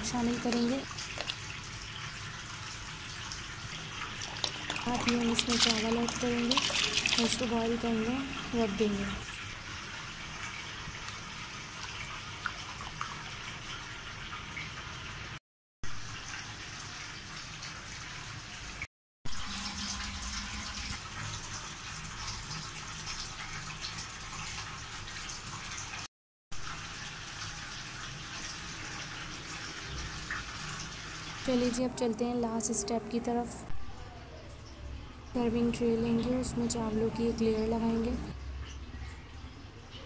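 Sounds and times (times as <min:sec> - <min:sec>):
rice and water boiling: 0:00.0 - 0:15.4.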